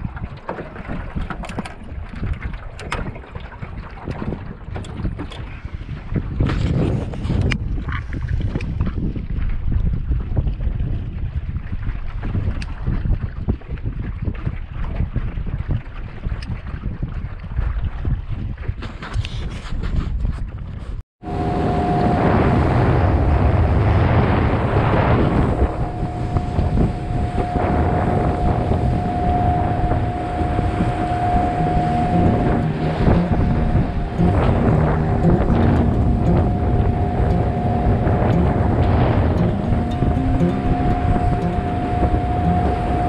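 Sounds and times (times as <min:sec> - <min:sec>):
wind buffeting microphone: 0:00.0 - 0:43.0
outboard motor running: 0:21.2 - 0:24.0
engine whine: 0:21.2 - 0:43.0
water rushing past hull: 0:21.2 - 0:43.0.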